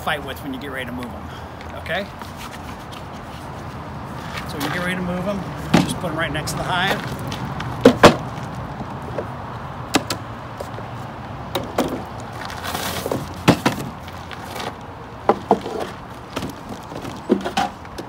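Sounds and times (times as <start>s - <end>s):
wood knocking on wood: 7.7s - 8.3s, 15.2s - 18.0s
wood scraping slide: 12.3s - 14.8s.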